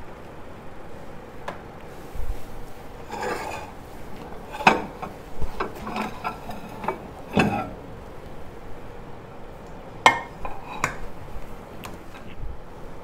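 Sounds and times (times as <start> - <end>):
bowl scraping: 2.0 - 8.3, 10.1 - 11.3
bowl knocking on turntable plate: 10.0 - 11.0.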